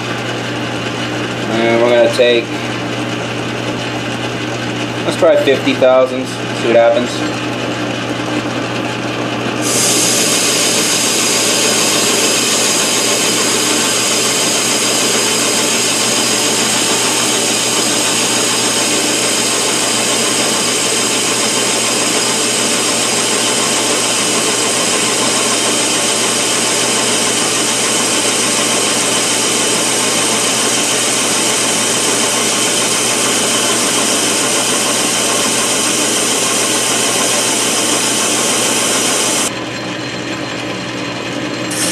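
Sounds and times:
lathe hum: 0.0s - 41.9s
lathe cutting metal: 9.6s - 41.9s.

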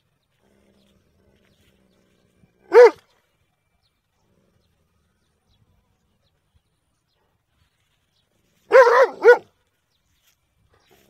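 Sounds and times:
dog barking: 2.7s - 3.0s, 8.7s - 9.5s.

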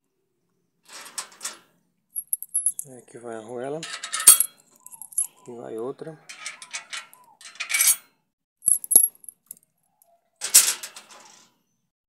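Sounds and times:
steel washers clinking: 2.2s - 2.9s, 3.8s - 5.4s, 6.3s - 8.0s, 8.7s - 9.5s
rattling metal clatter: 3.8s - 5.3s
metal scrape: 6.3s - 8.0s, 10.4s - 11.5s.

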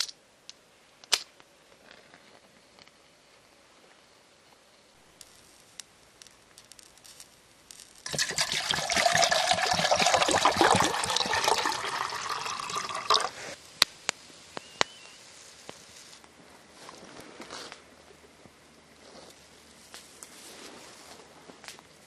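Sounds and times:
water pouring into metal cup: 8.0s - 13.4s.

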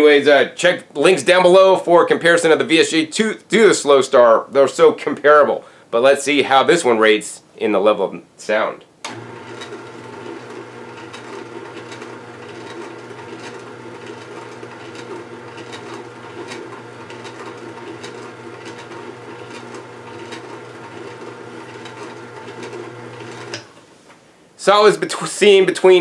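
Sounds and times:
juicer motor hum: 9.1s - 23.7s.

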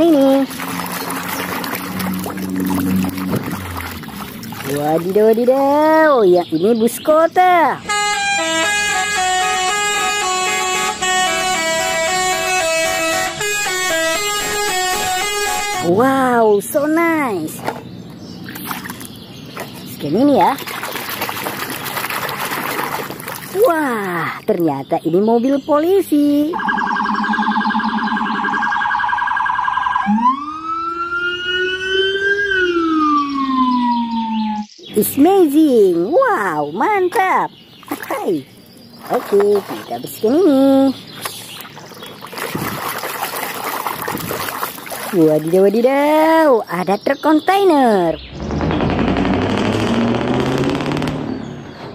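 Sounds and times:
multi-tone musical bus horn: 7.8s - 16.1s
police siren yelp and wail: 7.9s - 16.0s, 26.5s - 34.7s.

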